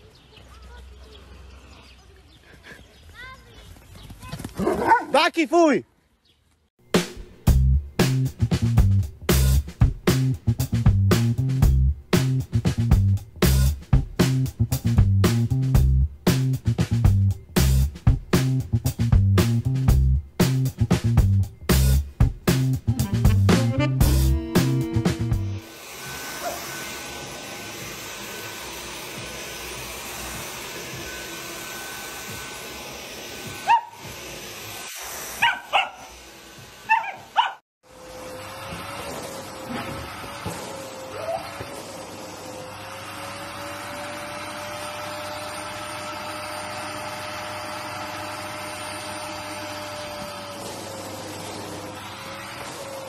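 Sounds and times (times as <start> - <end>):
vacuum cleaner on carpet: 25.6 - 53.0.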